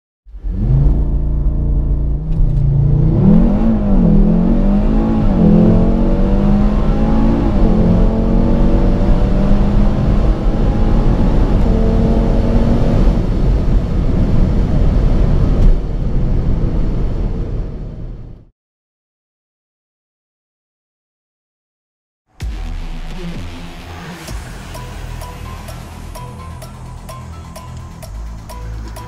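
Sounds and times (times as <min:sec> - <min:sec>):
car engine revving at standstill: 0:00.3 - 0:13.5
car engine accelerating hard: 0:00.3 - 0:16.4.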